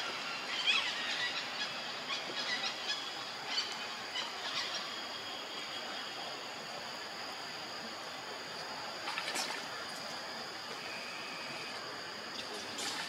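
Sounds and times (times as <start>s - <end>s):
high-pitched insect drone: 9.2s - 13.0s.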